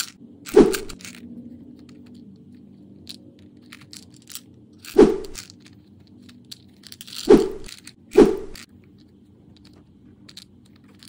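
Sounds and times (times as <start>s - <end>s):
plastic toy clacking on stone: 0.0s - 1.2s, 3.0s - 11.0s.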